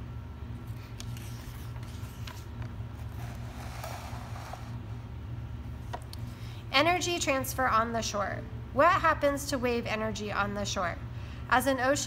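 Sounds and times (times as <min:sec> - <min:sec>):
paper page rustling: 0:00.7 - 0:04.8.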